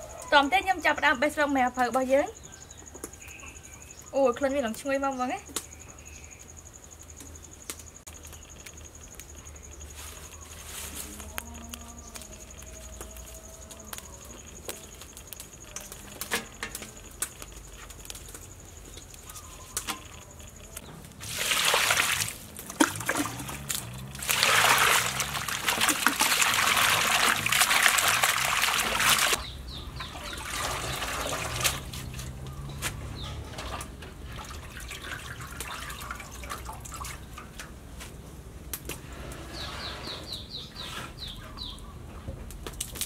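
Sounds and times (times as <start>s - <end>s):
greens swished in water: 21.2s - 29.4s
water pouring into metal bowl: 21.2s - 29.4s, 30.2s - 31.8s, 34.3s - 37.3s
leaves snapping and rustling: 42.5s - 43.0s.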